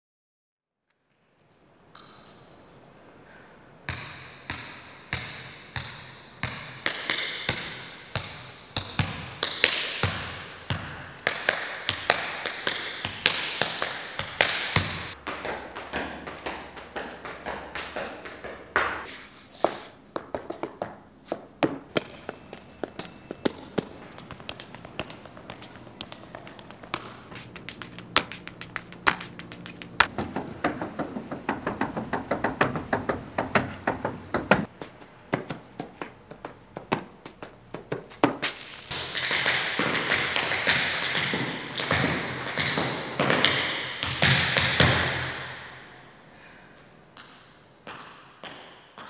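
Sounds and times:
tap dance shoes on hard ground: 0:20.1 - 0:43.6
feet shuffling through dry leaves: 0:38.4 - 0:38.9.

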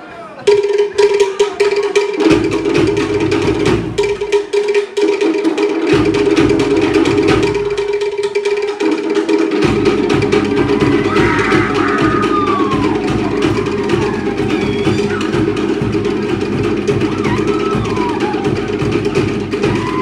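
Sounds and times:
wooden slit drums beaten fast: 0:00.4 - 0:20.0
big bass drum: 0:02.2 - 0:04.4, 0:09.5 - 0:20.0.

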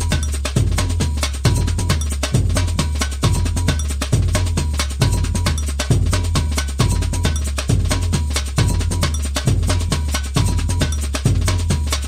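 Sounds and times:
music with percussive beat and bass: 0:00.0 - 0:12.0.

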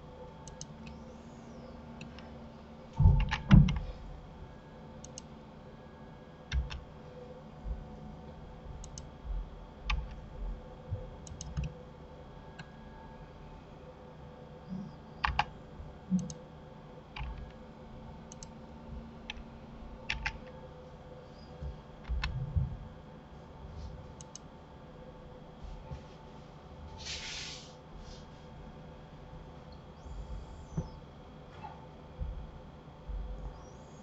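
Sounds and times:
faint steady hum: 0:00.0 - 0:34.0
keyboard and mouse clicks: 0:00.4 - 0:01.0, 0:03.0 - 0:03.8, 0:05.0 - 0:05.3, 0:06.5 - 0:06.8, 0:08.8 - 0:09.1, 0:11.2 - 0:11.7, 0:15.2 - 0:15.5, 0:16.2 - 0:16.4, 0:17.2 - 0:17.6, 0:18.3 - 0:18.5, 0:20.1 - 0:20.6, 0:22.0 - 0:22.4, 0:24.2 - 0:24.4.

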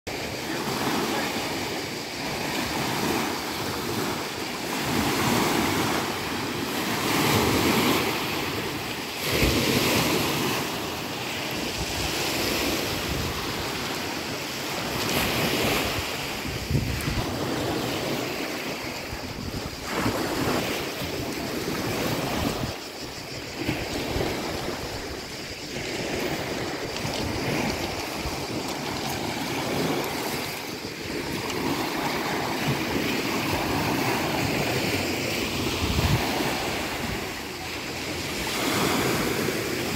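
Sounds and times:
waves washing over pebbles: 0:00.1 - 0:39.9
wind buffeting microphone: 0:14.9 - 0:37.5.

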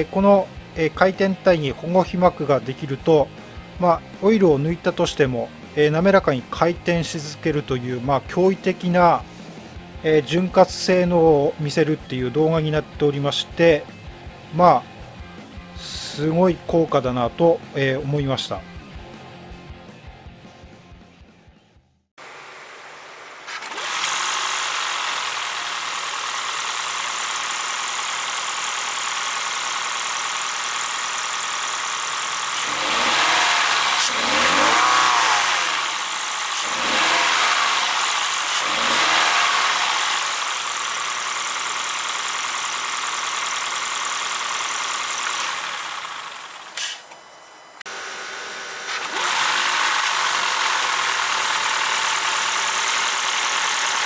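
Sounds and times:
car road and engine noise: 0:23.5 - 0:54.0.

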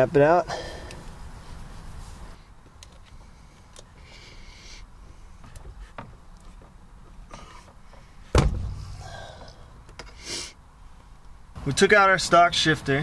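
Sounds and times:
loud metal clunk with thump: 0:08.3 - 0:09.0.

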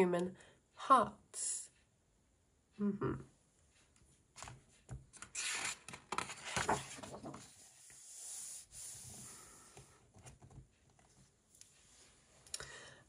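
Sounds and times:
paper page turning: 0:05.1 - 0:07.6.

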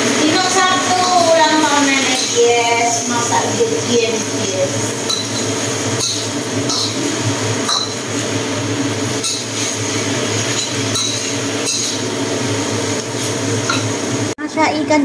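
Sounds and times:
greens sizzling in a wok: 0:00.0 - 0:14.4
metal spatula clinking on wok: 0:05.1 - 0:07.0.

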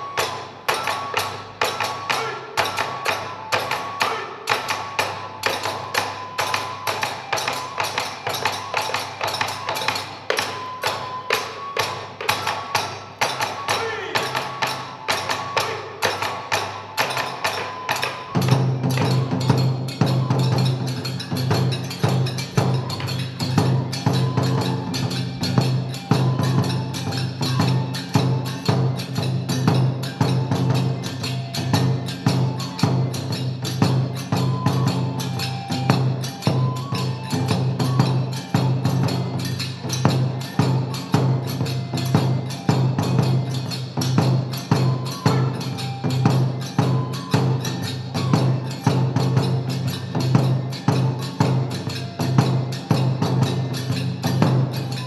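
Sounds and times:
bamboo flute notes: 0:00.0 - 0:55.0
small hand cymbals ringing: 0:00.0 - 0:55.0.

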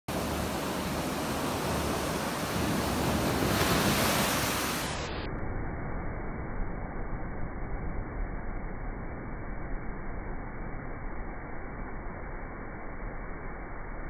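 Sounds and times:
waves washing up a beach: 0:00.1 - 0:05.2.

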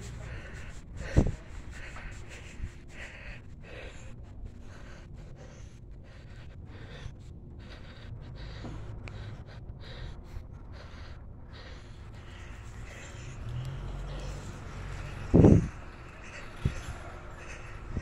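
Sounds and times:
wind rumbling on microphone: 0:00.0 - 0:02.9, 0:12.0 - 0:18.0
person breathing heavily: 0:00.0 - 0:18.0.

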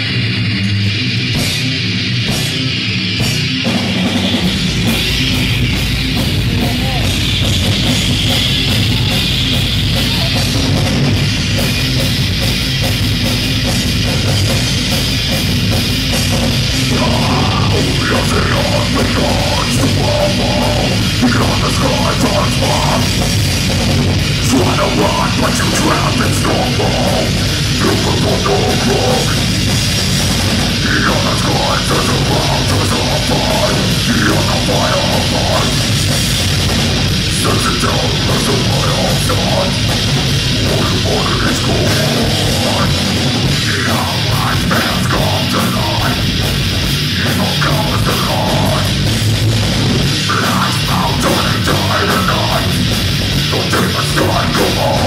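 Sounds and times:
bass guitar: 0:00.0 - 0:55.0
drums: 0:00.0 - 0:55.0
electric guitar: 0:00.0 - 0:55.0
person singing: 0:16.8 - 0:23.2, 0:24.4 - 0:29.5, 0:30.7 - 0:36.2, 0:37.3 - 0:49.1, 0:50.1 - 0:55.0.

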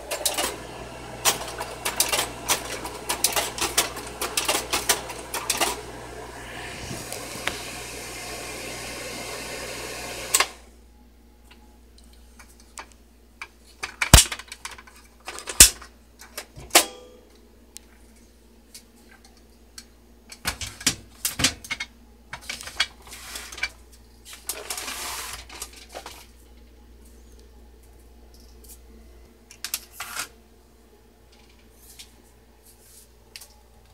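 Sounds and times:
projector cooling fan running: 0:00.0 - 0:11.5.

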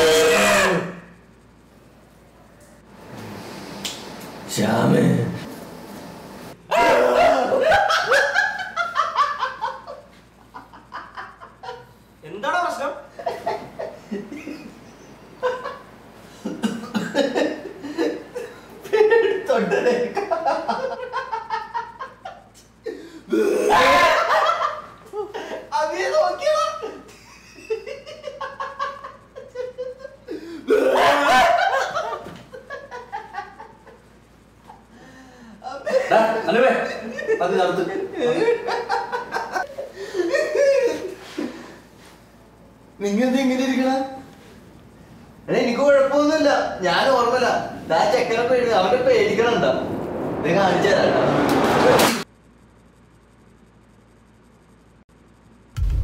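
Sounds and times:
man laughing loudly: 0:06.8 - 0:11.9, 0:13.2 - 0:14.8, 0:16.4 - 0:25.6, 0:27.1 - 0:34.0, 0:37.0 - 0:41.7.

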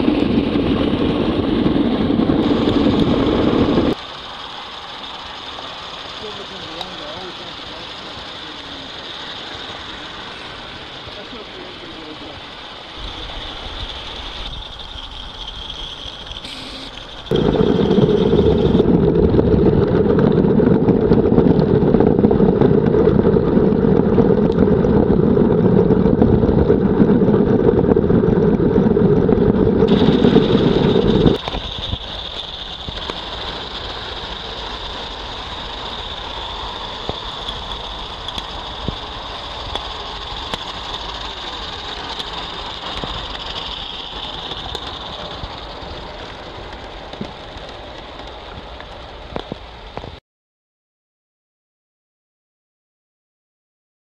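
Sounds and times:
loud steady rushing noise: 0:00.0 - 0:14.8, 0:16.3 - 0:19.7, 0:26.1 - 0:50.2
model steam locomotives running: 0:00.0 - 0:18.9, 0:29.4 - 0:50.2.

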